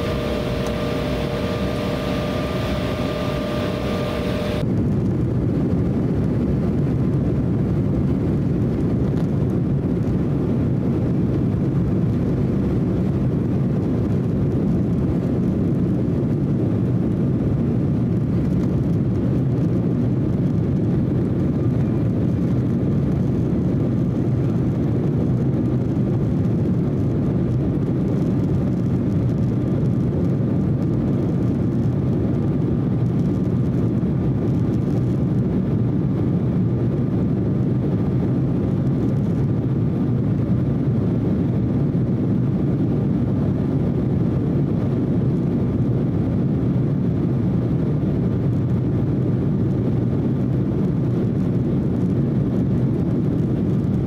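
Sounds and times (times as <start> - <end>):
faint steady whine: 0.0 - 4.7
airplane cabin rumble: 0.0 - 54.0.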